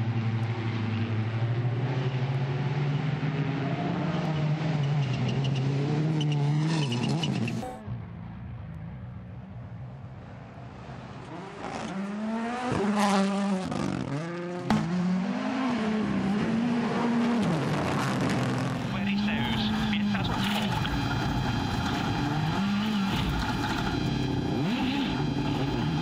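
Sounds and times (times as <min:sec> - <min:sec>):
rally car engines revving: 0:00.0 - 0:07.9, 0:10.9 - 0:26.0.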